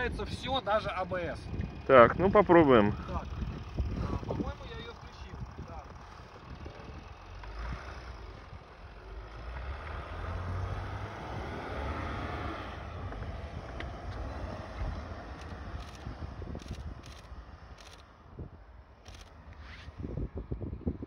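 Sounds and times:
diesel engine pulling under load: 0:00.0 - 0:18.2
wind on microphone: 0:12.7 - 0:17.6, 0:19.6 - 0:21.0.

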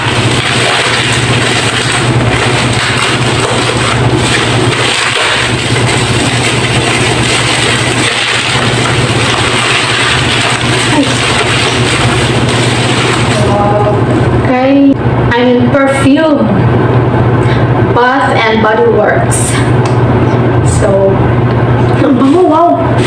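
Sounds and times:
packaging rustling: 0:00.0 - 0:13.5
machine hum with hiss: 0:00.0 - 0:23.0.

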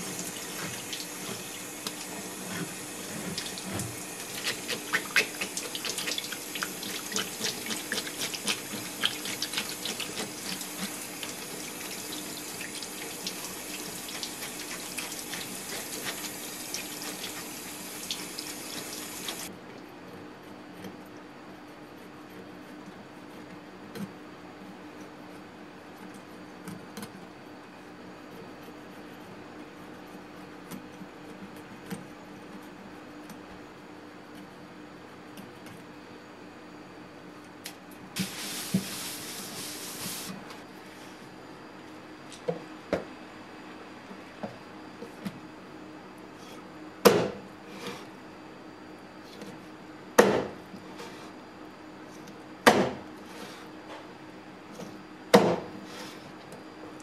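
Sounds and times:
knife scraping fish: 0:00.1 - 0:11.7
knife chopping on wooden board: 0:47.0 - 0:47.4, 0:50.2 - 0:50.6, 0:52.6 - 0:53.0, 0:55.3 - 0:55.7.

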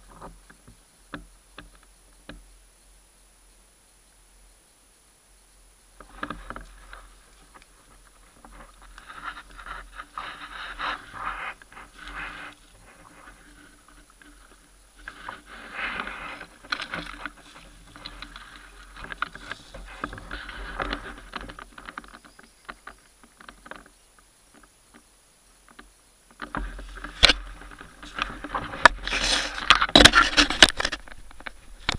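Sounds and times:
leaves and suit rustling: 0:05.8 - 0:25.0, 0:25.6 - 0:31.9.

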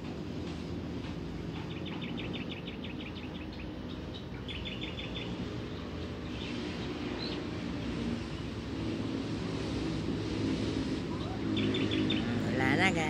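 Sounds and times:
low outdoor rumble: 0:00.0 - 0:13.0
small birds chirping: 0:01.4 - 0:08.5, 0:11.0 - 0:13.0.

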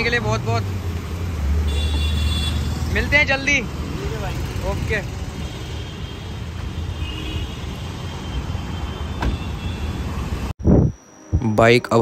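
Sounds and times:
street traffic rumble: 0:00.0 - 0:11.5.

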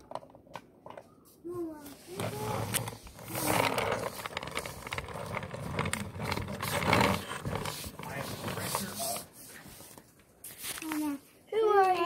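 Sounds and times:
toy car rolling on wooden floor: 0:00.0 - 0:01.1, 0:01.8 - 0:10.0.

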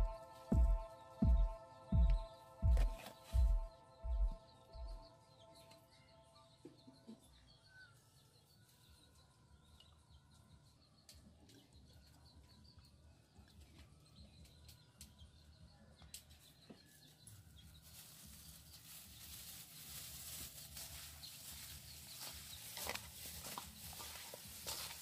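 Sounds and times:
plastic bag crinkling: 0:17.8 - 0:25.0.

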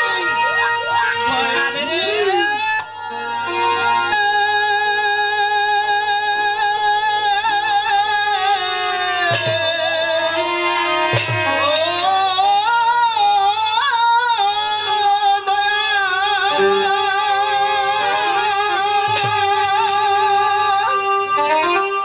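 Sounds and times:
wavering melody line: 0:16.5 - 0:18.9.

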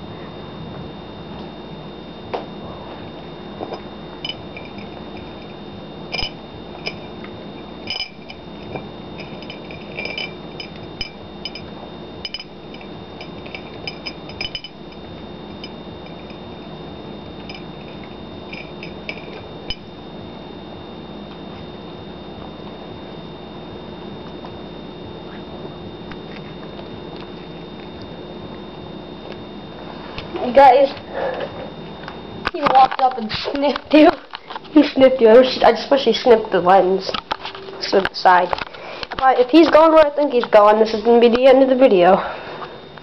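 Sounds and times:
background hum: 0:00.0 - 0:43.0
cat eating clinking bowl: 0:03.7 - 0:16.4, 0:17.4 - 0:19.8.

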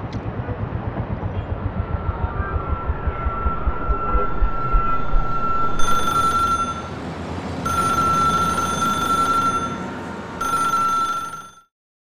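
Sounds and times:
low rumble of city traffic: 0:00.0 - 0:11.7
payphone ringing: 0:05.8 - 0:06.9, 0:07.7 - 0:11.7.

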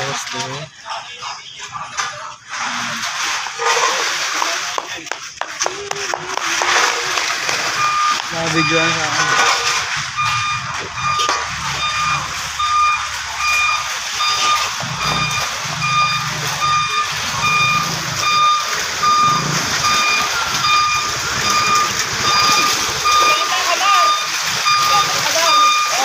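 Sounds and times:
reversing alarm beeping: 0:06.8 - 0:26.0.

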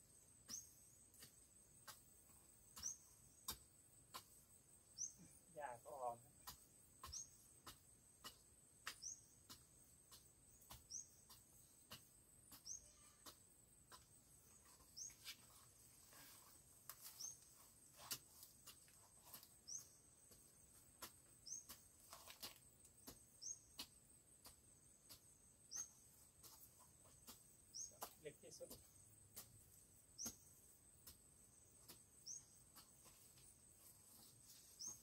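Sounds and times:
small bird chirping: 0:00.0 - 0:02.0, 0:02.6 - 0:35.0.

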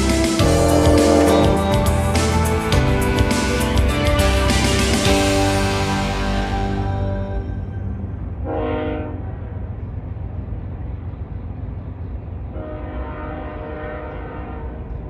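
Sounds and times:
locomotive air horn chord: 0:00.0 - 0:09.4, 0:12.5 - 0:14.8
freight train rumbling: 0:00.0 - 0:15.0.

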